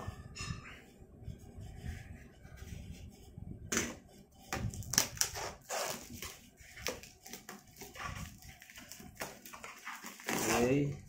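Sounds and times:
cardboard and plastic wrap rustling: 4.5s - 11.0s.

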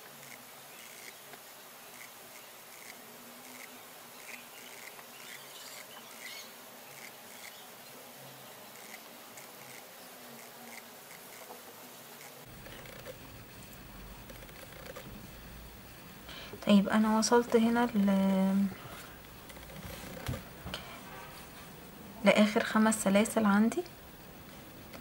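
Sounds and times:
steady low hiss: 0.0s - 25.0s
crochet hook ticking through thread: 12.2s - 13.3s, 14.1s - 15.2s.

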